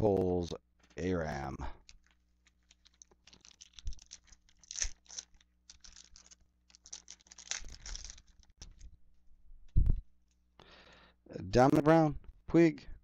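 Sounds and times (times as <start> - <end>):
foil wrapper tearing and crinkling: 2.8 - 8.6.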